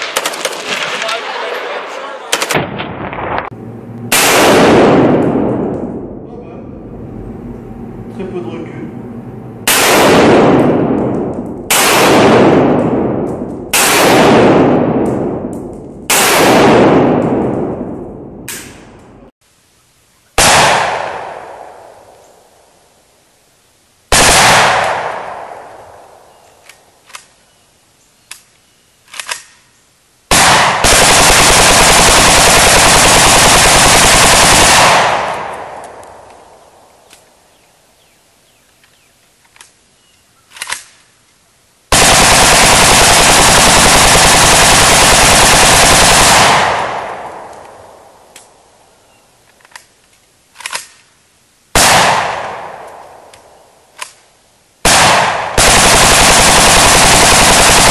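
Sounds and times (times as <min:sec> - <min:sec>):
rifle firing full auto bursts: 0:24.1 - 0:25.2, 0:30.3 - 0:35.9, 0:41.9 - 0:47.6, 0:54.8 - 0:57.9.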